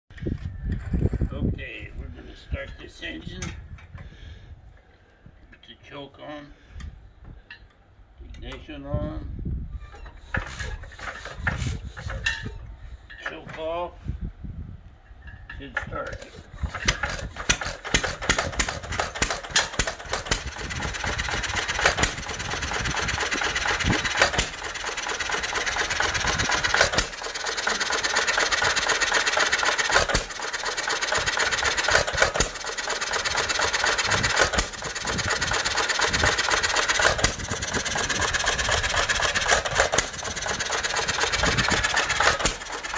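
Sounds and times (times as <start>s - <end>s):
flywheels clattering: 10.0s - 13.3s, 15.2s - 42.9s
stationary gas engine firing: 10.2s - 12.5s, 16.2s - 42.9s.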